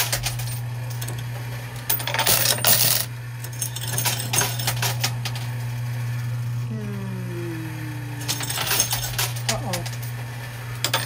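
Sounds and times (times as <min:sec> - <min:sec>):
coins clattering and clinking: 0:00.0 - 0:05.5, 0:08.2 - 0:10.1, 0:10.8 - 0:11.0
steady low hum: 0:00.0 - 0:11.0.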